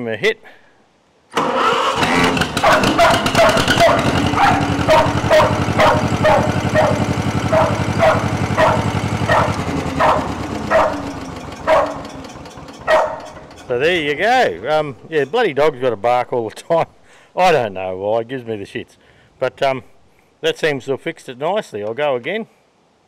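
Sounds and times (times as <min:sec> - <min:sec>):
tractor engine running: 0:01.4 - 0:16.0
dog barking: 0:02.4 - 0:12.2, 0:12.8 - 0:13.5.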